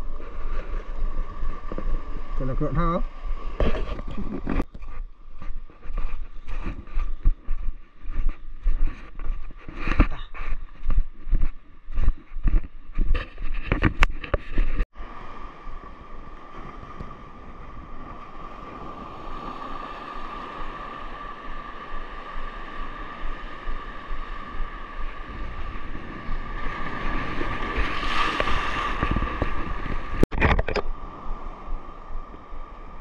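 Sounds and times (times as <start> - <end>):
wind on microphone: 0.0 - 33.0
footsteps on beach stones: 3.6 - 14.9, 18.4 - 30.2
surf washing over rocks: 15.0 - 33.0
wave breaking: 15.0 - 33.0.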